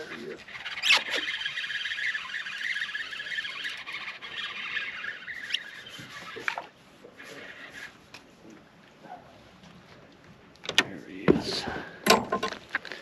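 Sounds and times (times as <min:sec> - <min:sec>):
fishing reel whirring: 0:00.0 - 0:08.0.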